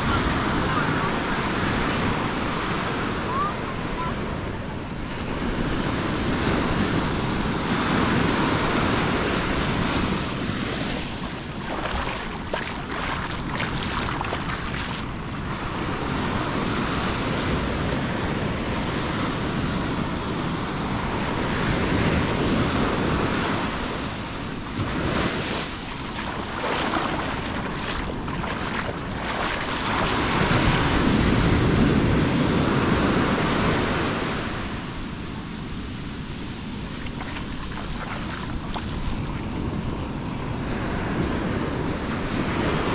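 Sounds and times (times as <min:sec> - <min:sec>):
surf breaking on sand: 0:05.2 - 0:16.0, 0:21.8 - 0:34.8, 0:35.8 - 0:42.9.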